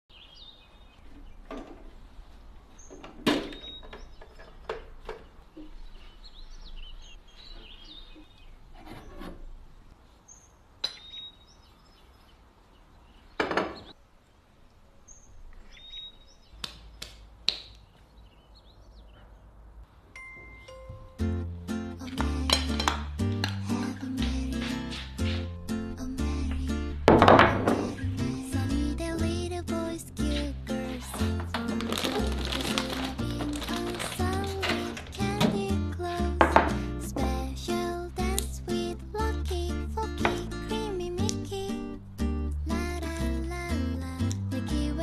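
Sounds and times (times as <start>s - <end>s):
objects rubbing and brushing: 8.6s - 10.2s, 23.8s - 25.6s, 30.2s - 35.4s
objects knocking as set down: 27.1s - 28.0s.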